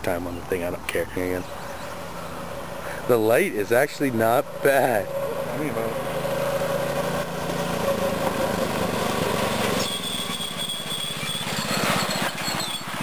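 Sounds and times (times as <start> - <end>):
mini bike engine running: 4.1 - 13.0.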